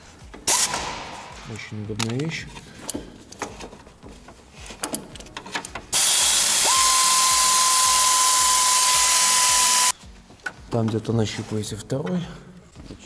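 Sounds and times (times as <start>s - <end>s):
air tool exhaust hiss: 0.5s - 0.9s, 5.9s - 10.0s
air tool motor whine: 5.9s - 9.9s.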